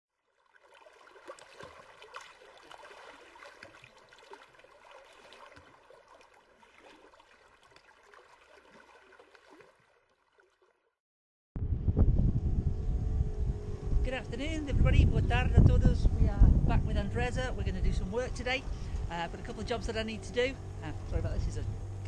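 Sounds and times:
small splashes and gurgles: 0.1s - 11.0s
water lapping and trickling: 0.1s - 11.0s.

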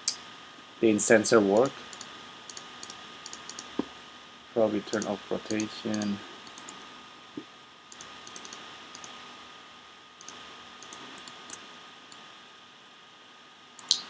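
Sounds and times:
faint steady hiss: 0.0s - 14.0s
computer mouse and keyboard clicks: 1.6s - 3.9s, 4.9s - 6.8s, 7.9s - 9.2s, 10.2s - 11.6s.

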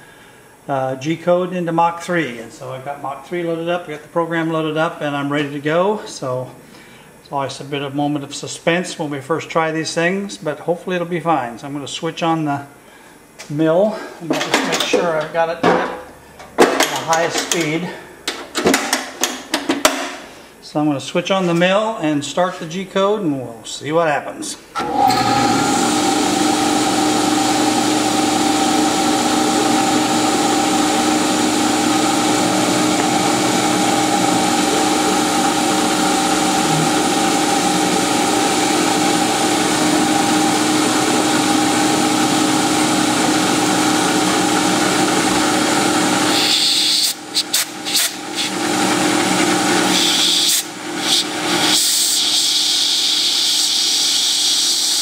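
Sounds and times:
milling machine whine: 24.8s - 55.0s.

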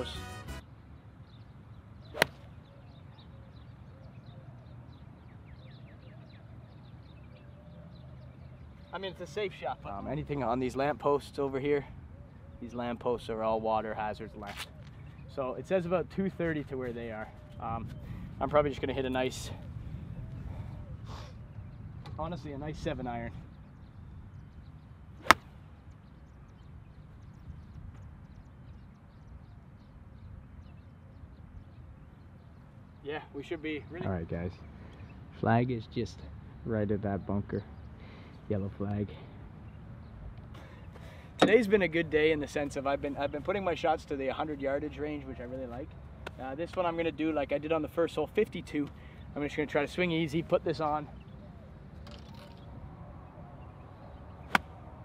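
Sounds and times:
birds chirping: 0.0s - 55.0s
outdoor background noise: 0.0s - 55.0s
golf club striking ball: 2.2s - 2.4s, 25.2s - 25.5s, 54.5s - 54.8s.

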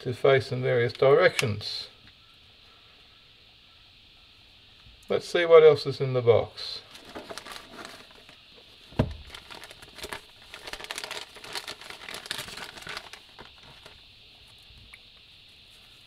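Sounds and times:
plastic bag crinkling: 6.8s - 8.4s, 9.0s - 14.0s
thump: 8.9s - 9.3s.

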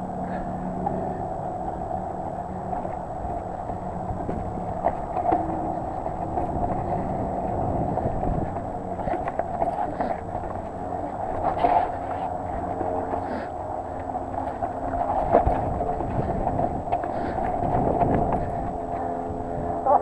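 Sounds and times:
bike tyres rumbling on rock: 0.0s - 20.0s
moving air: 0.0s - 20.0s
bike knocks and rattles: 0.8s - 19.0s.

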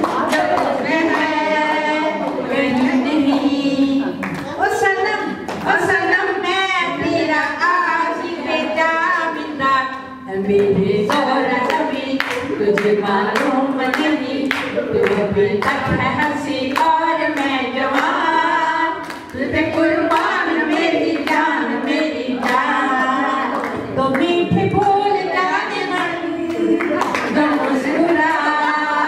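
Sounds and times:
hand claps: 0.0s - 3.5s, 9.9s - 18.2s, 19.0s - 22.7s, 25.9s - 28.8s
group of people singing: 0.0s - 5.0s, 5.6s - 29.0s.

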